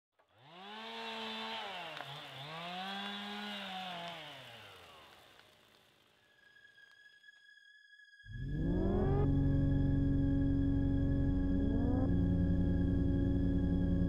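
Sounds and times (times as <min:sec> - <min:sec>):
chainsaw revving: 0:00.3 - 0:06.2.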